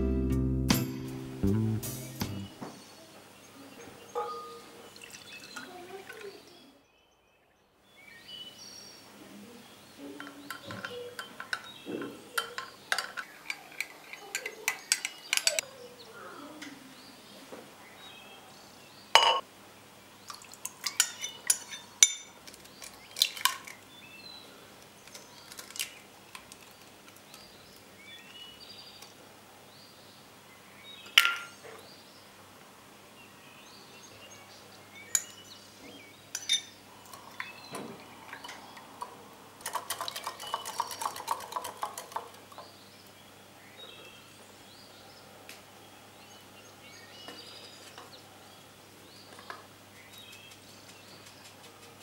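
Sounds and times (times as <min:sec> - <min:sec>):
utensils clinking on glass bowl: 0:20.8 - 0:23.8, 0:36.3 - 0:37.6, 0:39.6 - 0:42.4.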